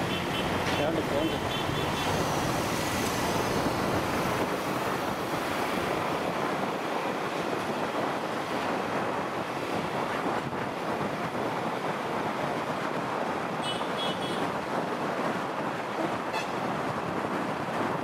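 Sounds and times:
road and traffic noise: 0.0 - 18.0
wind rushing over microphone: 0.4 - 18.0.

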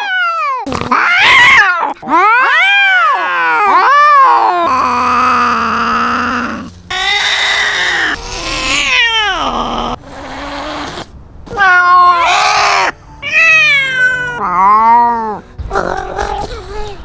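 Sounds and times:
cats yowling: 0.0 - 15.4.

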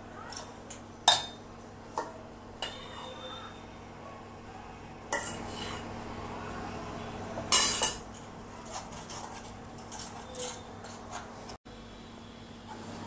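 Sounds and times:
spoon stirring and scraping pot: 0.3 - 3.2, 5.1 - 6.0, 7.4 - 11.6.

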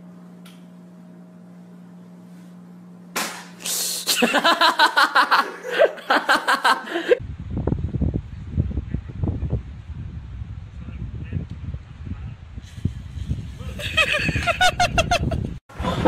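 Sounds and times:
faint hum: 0.0 - 16.0
hearty rhythmic laughter: 4.1 - 7.2, 13.6 - 16.0.

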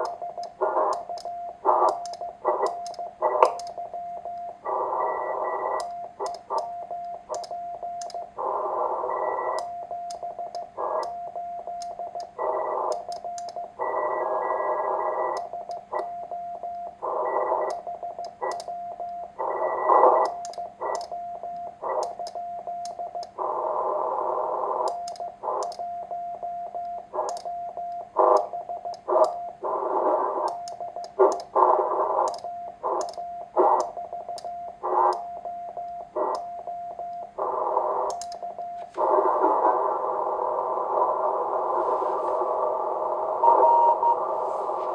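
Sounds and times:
radio static: 0.0 - 3.6, 4.6 - 5.8, 8.3 - 9.6, 10.7 - 11.1, 12.4 - 13.1, 13.7 - 16.0, 17.0 - 17.8, 19.4 - 20.2, 23.3 - 25.6, 27.1 - 27.3, 28.1 - 34.0, 34.8 - 35.2, 36.1 - 36.4, 37.3 - 38.1, 38.8 - 44.9
sharp pops and clicks: 0.0 - 3.8, 7.3 - 8.2, 17.7 - 18.7, 24.8 - 25.8, 27.2 - 29.4, 30.4 - 31.6, 38.1 - 38.7
morse code tone: 0.0 - 23.8, 43.4 - 44.4.

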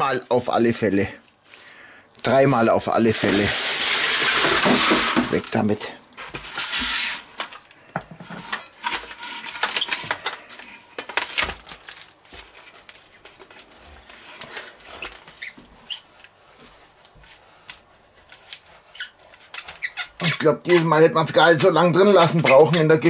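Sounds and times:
metal spatula scraping a pan: 6.4 - 7.4, 8.2 - 11.0.

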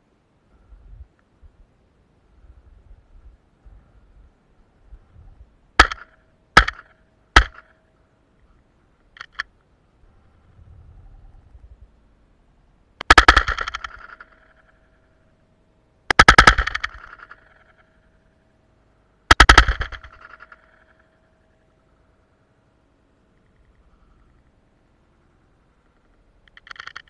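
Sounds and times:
faint steady whine: 0.0 - 27.0
shotgun shots: 5.8 - 7.7, 13.0 - 14.7, 16.1 - 17.8, 19.3 - 20.9
faint clicks: 8.4 - 9.7, 23.2 - 27.0.

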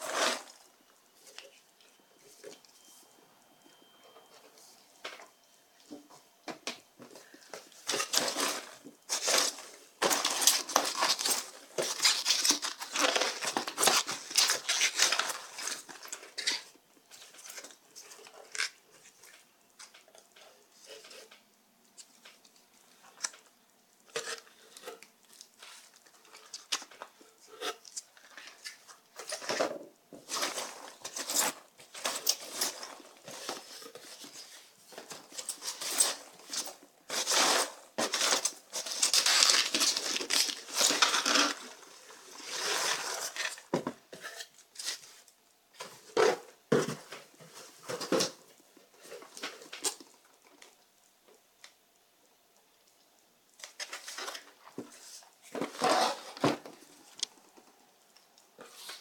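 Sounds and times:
hands rustling packing peanuts: 0.0 - 0.8, 7.2 - 19.5, 30.2 - 46.0.

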